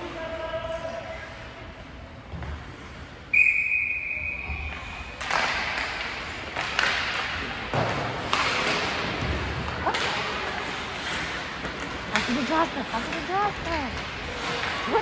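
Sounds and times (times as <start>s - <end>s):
sharp knocks and clacks on rink: 0.0s - 3.3s, 4.4s - 15.0s
referee's whistle blast: 3.3s - 4.6s.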